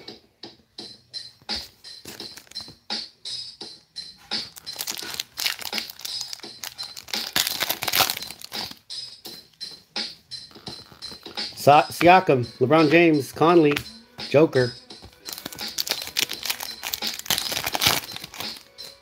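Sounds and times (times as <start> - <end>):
background music: 0.0 - 19.0
foil wrappers crinkling: 2.1 - 2.7, 4.4 - 8.8, 15.0 - 19.0.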